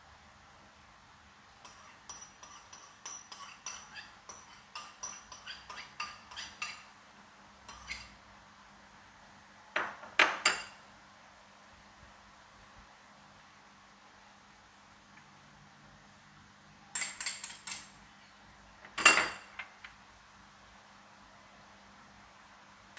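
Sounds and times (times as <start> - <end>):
metal spoon clinking on porcelain bowl: 1.6 - 6.9, 7.7 - 8.1, 16.9 - 18.0
crockery and metal clinks: 16.9 - 18.0.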